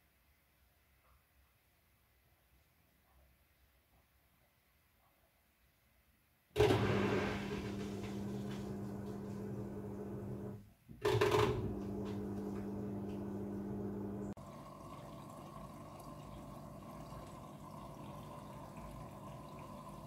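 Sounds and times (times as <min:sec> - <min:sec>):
water hissing into drum: 0:06.6 - 0:09.4
washing machine drain pump humming: 0:06.6 - 0:20.0.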